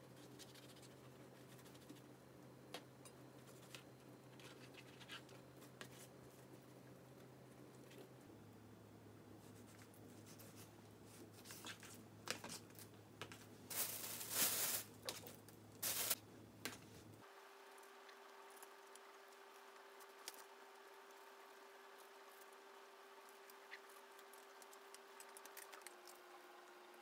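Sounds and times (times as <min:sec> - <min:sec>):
paper crinkling: 0:13.7 - 0:16.2, 0:23.4 - 0:26.2.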